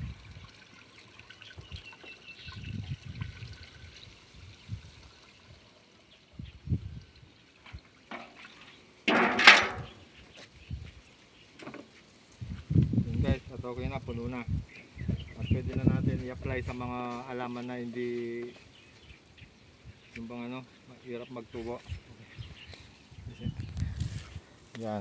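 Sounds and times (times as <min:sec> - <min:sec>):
liquid pouring into plastic tank: 0:00.0 - 0:05.6.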